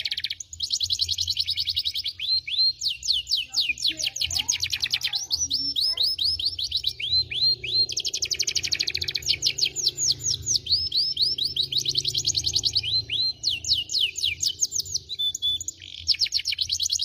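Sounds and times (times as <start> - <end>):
canary singing trills: 0.0 - 17.0.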